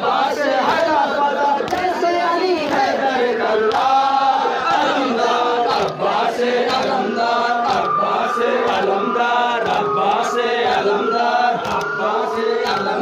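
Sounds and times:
men chanting a lament: 0:00.0 - 0:13.0
steady beat of sharp strokes: 0:05.7 - 0:13.0.

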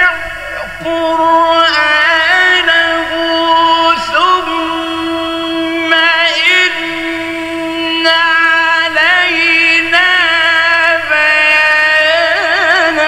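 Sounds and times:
man reciting in melismatic chant: 0:00.0 - 0:13.0.

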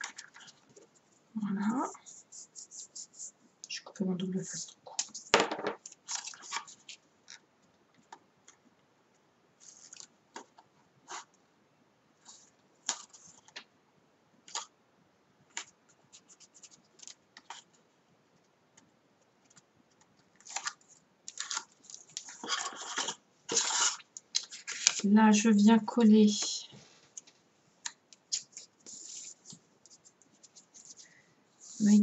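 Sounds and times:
cardstock rustling: 0:20.4 - 0:25.1.

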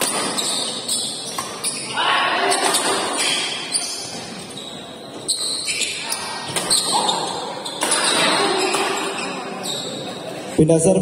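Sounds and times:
racket hitting shuttlecock: 0:00.0 - 0:00.7
shoe squeaks on court floor: 0:00.0 - 0:10.2.

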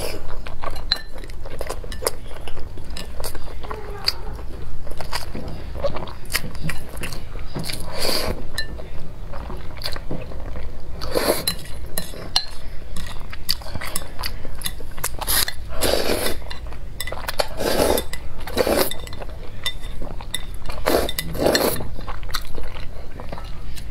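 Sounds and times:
chopsticks clinking on glass bowl: 0:16.4 - 0:21.7.

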